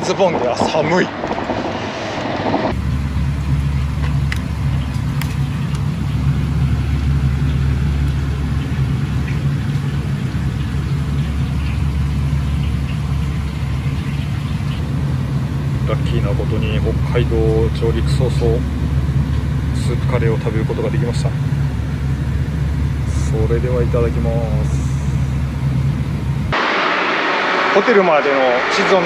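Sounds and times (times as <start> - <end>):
wind and road noise: 0.0 - 23.2, 23.8 - 29.0
low machine hum: 0.0 - 29.0.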